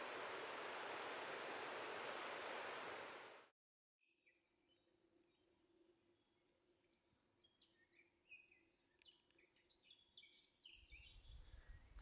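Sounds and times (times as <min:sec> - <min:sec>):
faint steady low hum: 0:00.0 - 0:03.5
faint birdsong chirps: 0:04.0 - 0:12.0.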